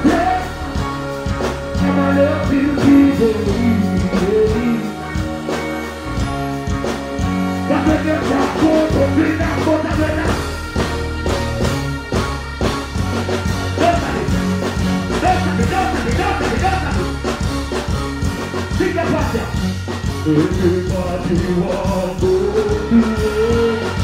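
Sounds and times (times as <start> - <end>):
person singing into a microphone: 0.0 - 5.6, 7.6 - 10.6, 20.2 - 24.0
dancehall music over a sound system: 0.0 - 24.0.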